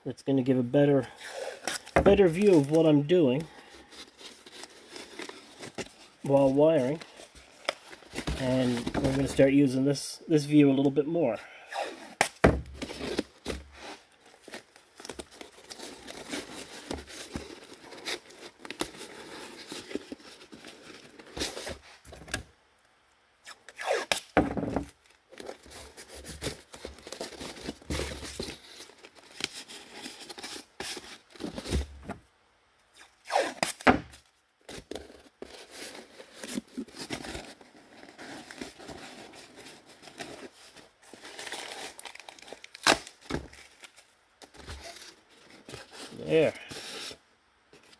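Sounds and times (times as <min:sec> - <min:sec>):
cardboard rustling and knocking: 0:01.9 - 0:02.6, 0:12.4 - 0:13.7, 0:24.4 - 0:25.0
tape pulled off roll and torn: 0:11.7 - 0:22.4, 0:23.4 - 0:32.1, 0:32.8 - 0:40.5, 0:41.1 - 0:46.2.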